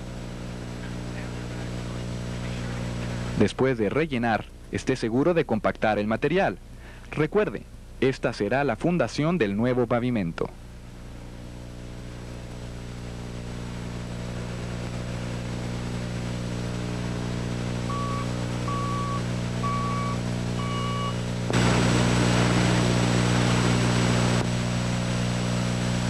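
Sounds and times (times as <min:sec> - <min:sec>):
diesel engine running: 0:11.2 - 0:26.0
reversing alarm beeps: 0:17.9 - 0:21.2.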